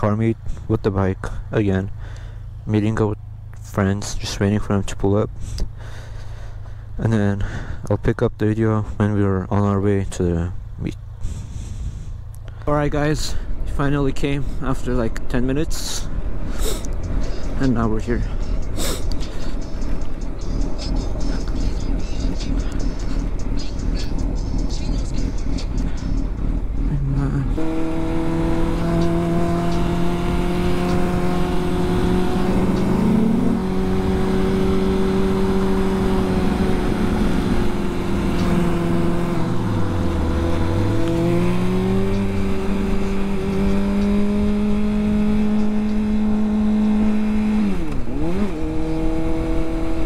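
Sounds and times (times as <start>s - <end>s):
motorcycle engine running: 15.8s - 50.0s.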